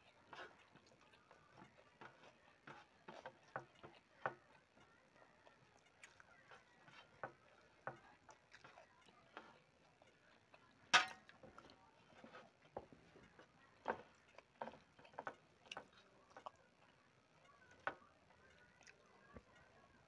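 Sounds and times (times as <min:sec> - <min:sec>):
fingers tapping on steel plate: 0:11.0 - 0:11.6.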